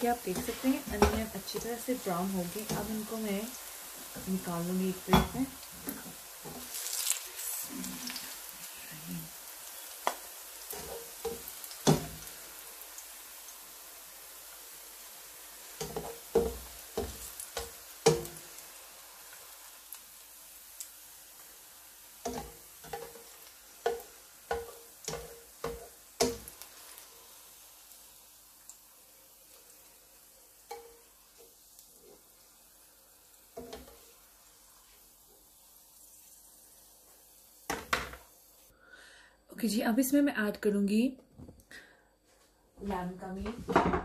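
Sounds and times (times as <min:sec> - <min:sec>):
faint oil sizzle: 0:00.0 - 0:40.3
spatula knocking on frying pan: 0:00.4 - 0:01.7, 0:15.8 - 0:18.4, 0:22.2 - 0:23.2, 0:23.8 - 0:26.6.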